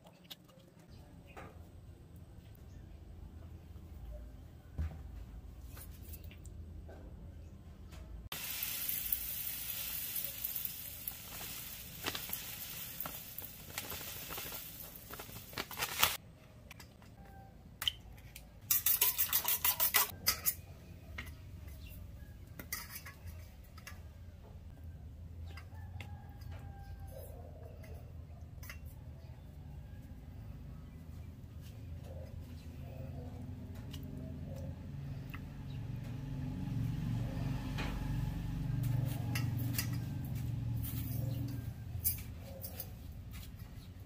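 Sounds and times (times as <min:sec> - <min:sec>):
utensils clinking on dishes: 0:18.6 - 0:20.7, 0:22.6 - 0:24.0, 0:39.2 - 0:40.2.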